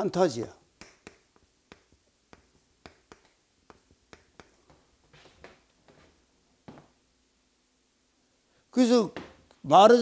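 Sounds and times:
chalk tapping on chalkboard: 0.8s - 6.0s.

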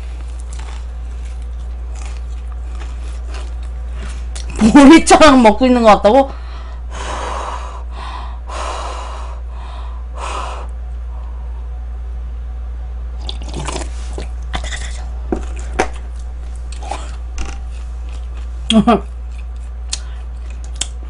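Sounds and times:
crunchy chewing: 0.0s - 4.6s, 13.2s - 21.0s
low electrical hum: 0.0s - 21.0s
noisy sipping: 13.2s - 18.4s.

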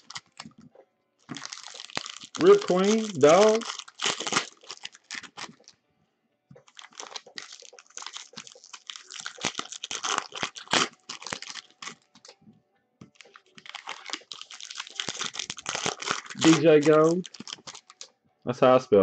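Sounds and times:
foil wrappers crinkling and tearing: 0.0s - 0.6s, 1.2s - 5.8s, 6.6s - 12.4s, 13.0s - 18.1s.

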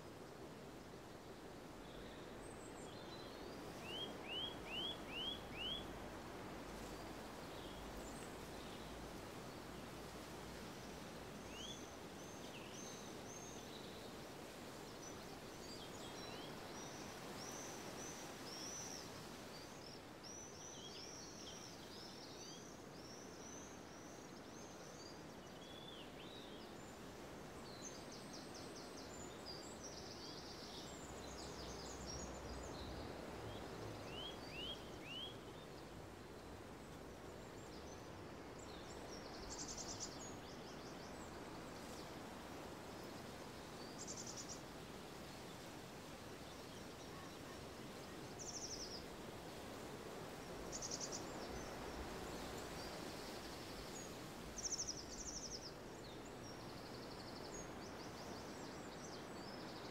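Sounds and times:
outdoor background noise: 0.0s - 59.9s
small birds chirping: 46.4s - 49.2s, 50.2s - 59.9s.

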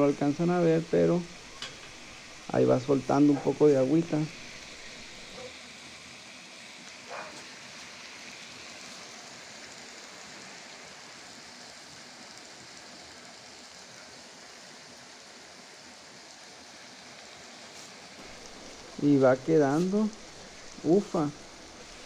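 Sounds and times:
food sizzling on a griddle: 0.0s - 22.0s.

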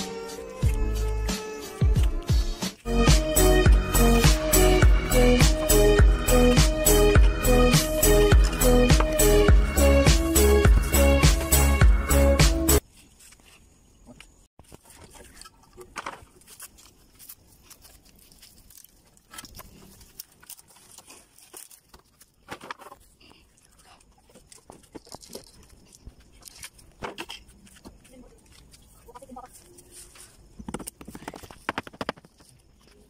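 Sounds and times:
wooden boards knocking and scraping: 14.7s - 16.4s.

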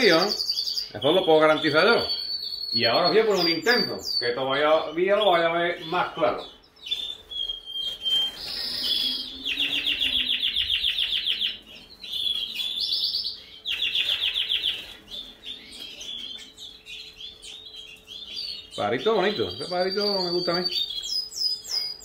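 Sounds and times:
canary rattling trills: 0.0s - 22.0s
canary whistled notes: 7.1s - 11.6s.

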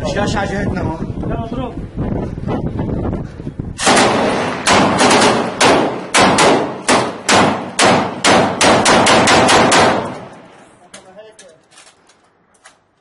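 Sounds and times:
heavy gunshots with echo: 3.8s - 10.4s.

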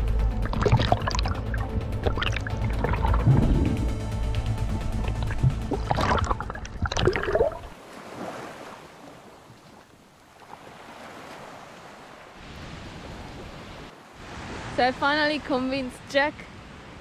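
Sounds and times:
background music: 0.0s - 7.6s
wind: 0.0s - 17.0s.

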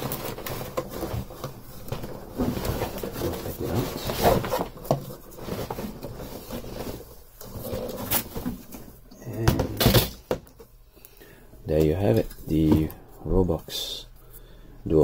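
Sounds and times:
cloth cover rustling: 0.0s - 9.0s.

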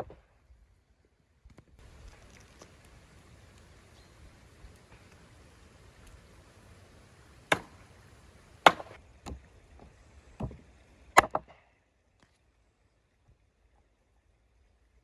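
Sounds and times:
cleaver chopping on wooden board: 7.5s - 7.8s, 8.7s - 9.0s.

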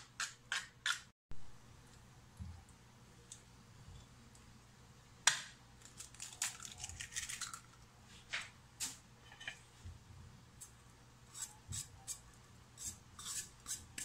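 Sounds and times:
egg cracking: 5.3s - 7.9s.

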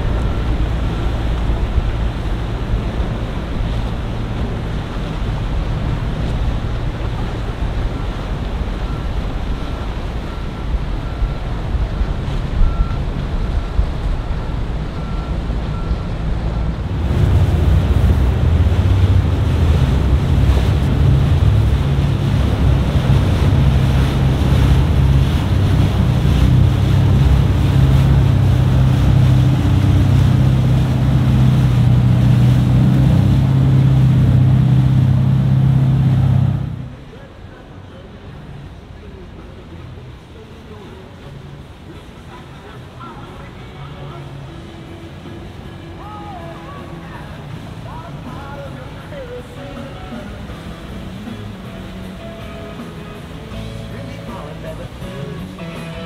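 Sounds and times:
boat engine running loudly: 0.0s - 37.1s, 41.7s - 56.0s
wind on microphone: 0.0s - 37.1s
water rushing past boat: 0.0s - 56.0s
faint repeating beep: 12.6s - 16.7s.

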